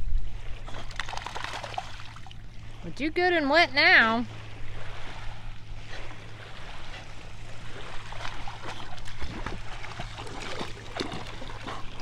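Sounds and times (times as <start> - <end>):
small waves lapping: 0.2 - 12.0
dog splashing in water: 0.7 - 2.3, 7.9 - 12.0.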